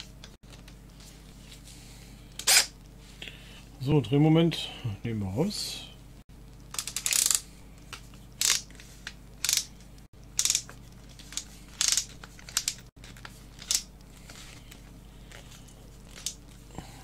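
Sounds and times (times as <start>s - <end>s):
drill collar ratcheting clicks: 8.4s - 8.6s, 10.4s - 10.7s.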